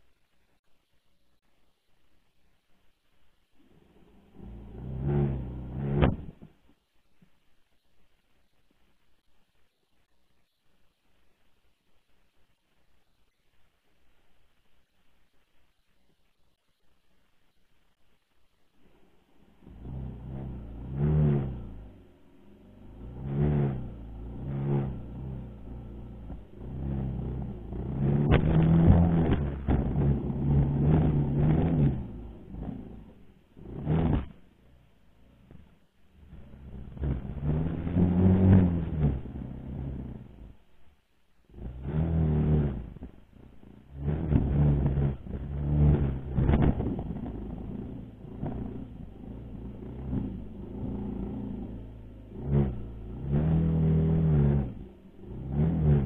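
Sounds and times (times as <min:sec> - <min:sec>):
dirt bike engine under throttle: 0:03.8 - 0:06.6, 0:19.4 - 0:40.6, 0:41.5 - 0:56.0.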